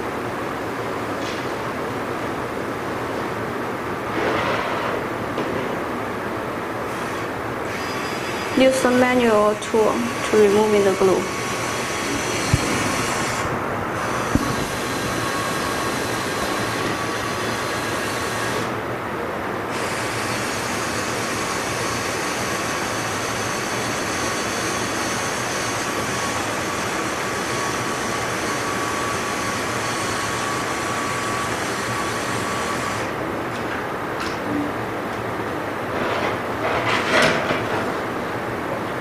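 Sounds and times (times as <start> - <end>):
rushing machine noise: 0.0 - 19.1
faint machine whine: 0.0 - 39.0.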